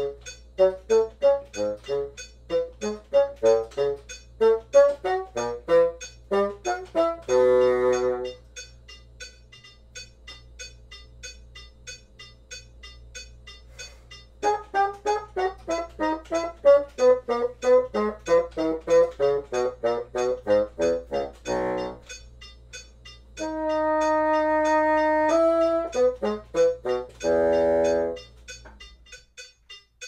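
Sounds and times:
bassoon playing: 0.0s - 8.5s, 14.4s - 22.2s, 23.4s - 28.3s
metronome clicking: 0.0s - 30.0s.

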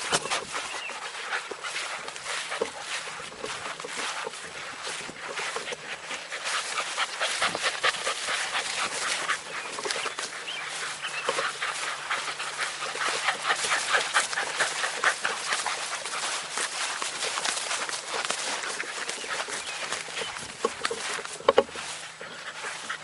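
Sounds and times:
dogs panting: 0.0s - 23.0s
grass rustling: 0.0s - 23.0s.

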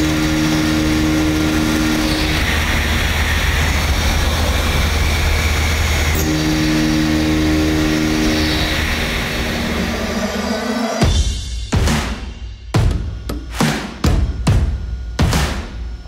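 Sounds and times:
machining noise: 0.0s - 11.4s
steady pitched hum: 0.0s - 16.0s.

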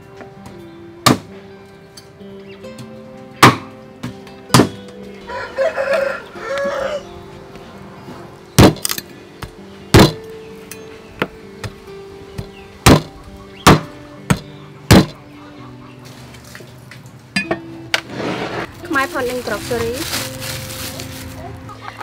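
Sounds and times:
soft background music: 0.0s - 22.0s
cleaver chopping on wooden block: 1.0s - 1.3s, 3.4s - 3.7s, 4.5s - 4.8s, 8.6s - 9.0s, 10.0s - 10.3s, 12.4s - 15.2s
chicken calling: 5.2s - 7.5s, 12.5s - 16.6s.

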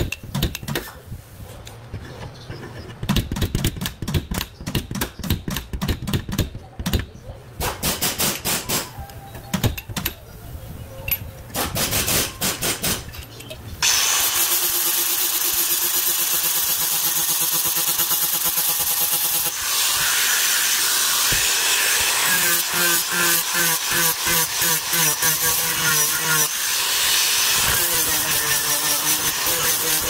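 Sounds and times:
air hammer rattling on sheet metal: 11.5s - 13.1s
grinder whining: 13.8s - 30.0s.

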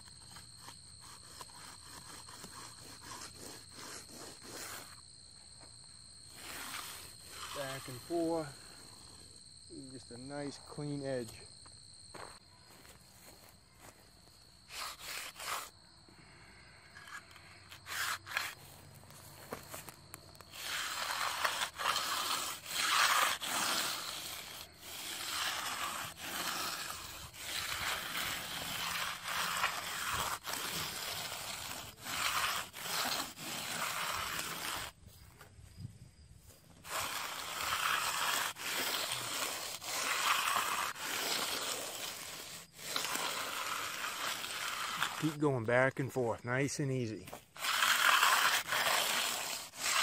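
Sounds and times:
concrete edger scraping: 0.0s - 5.0s, 6.3s - 9.1s, 14.7s - 15.8s, 16.6s - 35.0s, 36.7s - 46.0s, 47.0s - 50.0s.

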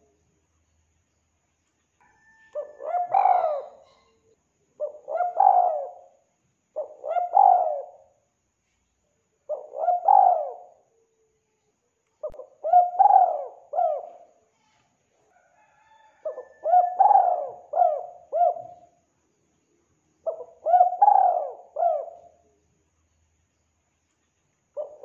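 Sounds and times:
dove cooing: 2.2s - 4.2s, 4.8s - 6.2s, 6.8s - 8.1s, 9.5s - 10.8s, 12.2s - 14.3s, 16.2s - 19.0s, 20.2s - 22.5s, 24.8s - 25.0s.

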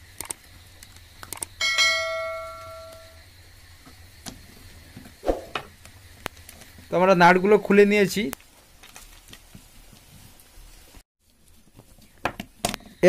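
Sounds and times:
quick clicks: 0.1s - 1.6s
bell chime: 1.6s - 3.2s.

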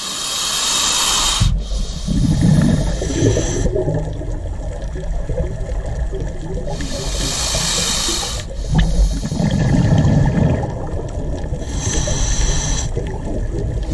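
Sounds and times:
regulator hissing inhale: 0.0s - 3.9s, 6.7s - 9.7s, 11.5s - 13.2s
exhaled bubbles rumbling: 1.5s - 13.9s.

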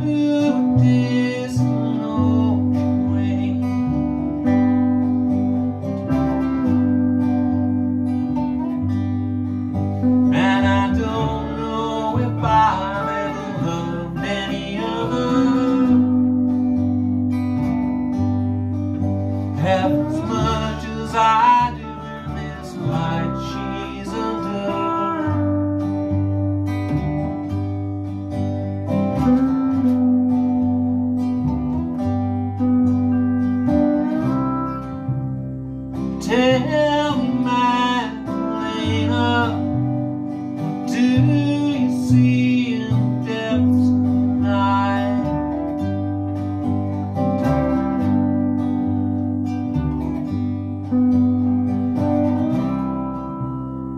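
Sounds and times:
person singing: 0.0s - 4.7s, 6.2s - 16.8s, 19.3s - 25.9s, 36.2s - 46.0s
small acoustic band playing: 0.0s - 53.9s.

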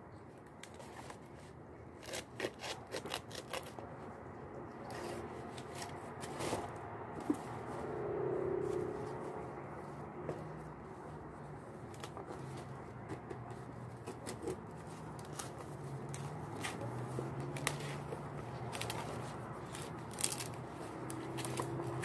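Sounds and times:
leaves rustling and crackling: 17.5s - 22.0s
leaves snapping: 19.7s - 21.8s.

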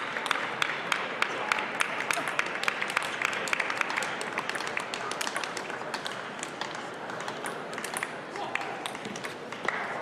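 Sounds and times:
people clapping: 0.0s - 10.0s.

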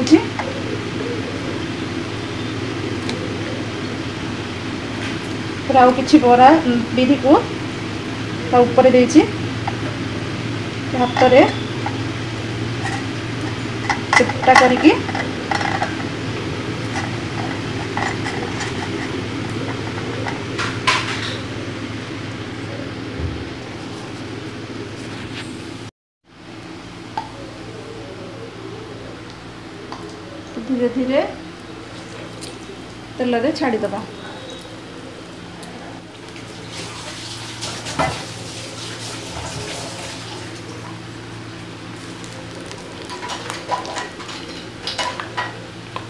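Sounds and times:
low steady hum: 0.0s - 46.0s
frying oil sizzling: 1.6s - 22.6s, 36.1s - 46.0s.

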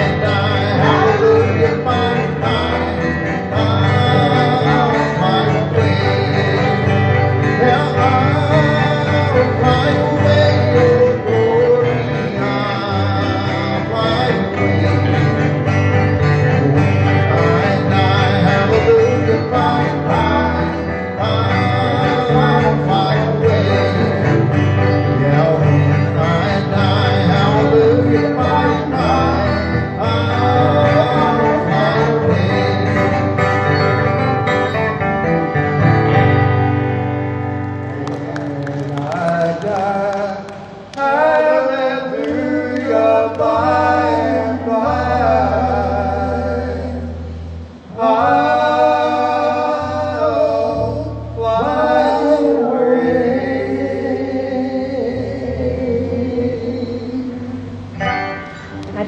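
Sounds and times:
singing: 0.0s - 6.9s
country gospel band with guitar: 0.0s - 59.0s.

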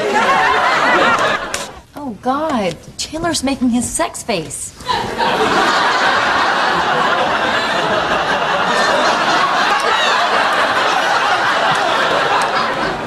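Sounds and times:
audience laughing: 0.0s - 1.8s, 4.8s - 13.0s.

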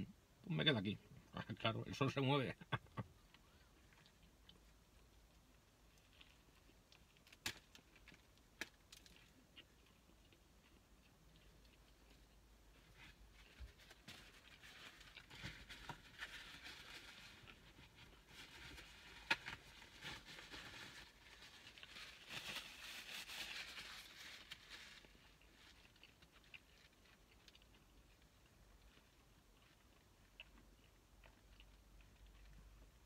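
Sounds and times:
paper wrappers crinkling: 18.3s - 25.6s.

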